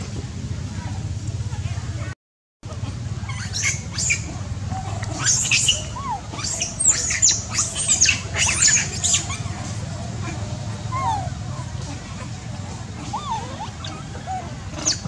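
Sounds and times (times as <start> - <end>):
steady low rumble: 0.0 - 15.0
high-pitched animal squeals: 3.2 - 12.4, 13.0 - 15.0.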